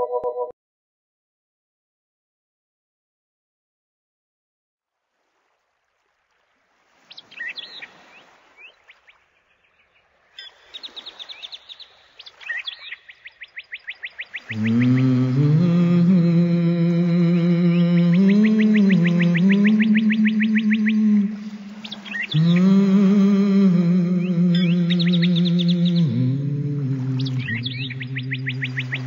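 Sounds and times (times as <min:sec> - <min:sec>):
bird chirping: 0:08.7 - 0:15.2, 0:17.7 - 0:22.8, 0:24.2 - 0:29.0.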